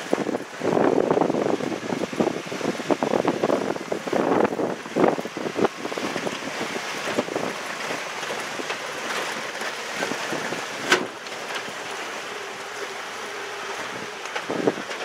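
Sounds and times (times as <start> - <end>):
tyres crunching on gravel: 2.6 - 15.0
small rattles and clicks: 6.0 - 15.0.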